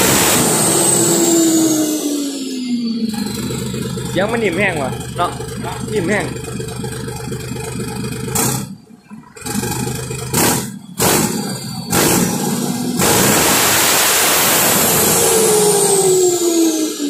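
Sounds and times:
diesel truck engine revving: 0.0s - 17.0s
turbo howl: 14.4s - 17.0s.

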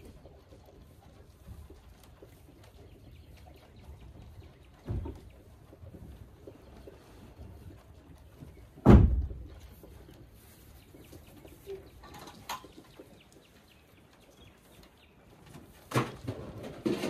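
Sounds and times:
low rustling in hay: 4.8s - 12.0s.

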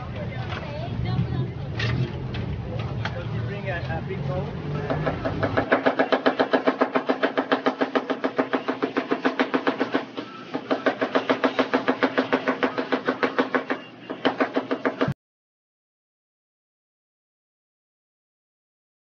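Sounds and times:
knife chopping on wooden board: 4.8s - 15.2s.

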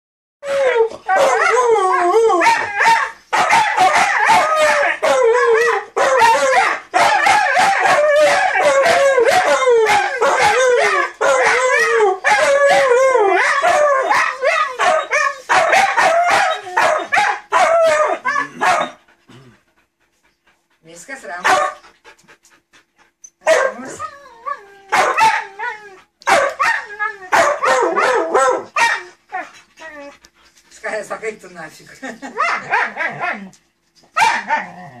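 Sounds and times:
dogs howling and yowling: 0.4s - 19.0s, 23.5s - 30.3s.

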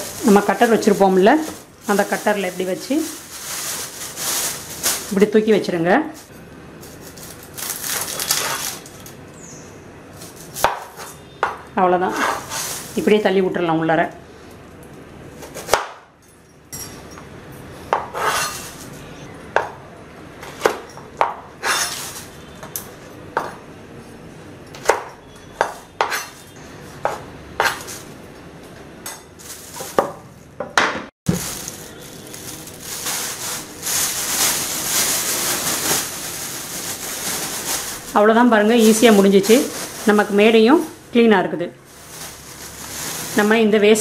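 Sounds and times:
plastic bag crinkling: 0.0s - 9.1s, 12.4s - 13.2s, 29.4s - 30.0s, 31.3s - 44.0s.

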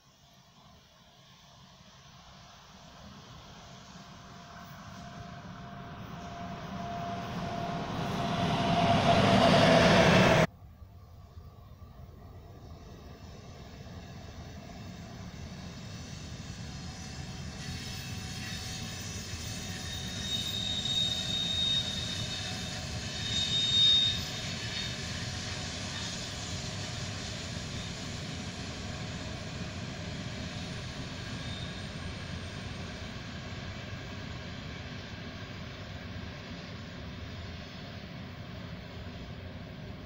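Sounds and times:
train wheels rumbling on rails: 3.0s - 10.5s, 12.2s - 40.0s
high squeal: 4.8s - 10.5s, 13.8s - 33.4s.

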